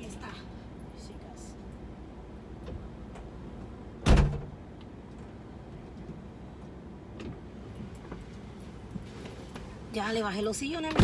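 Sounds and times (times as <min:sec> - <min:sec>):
liftgate slamming shut: 0:04.0 - 0:04.6.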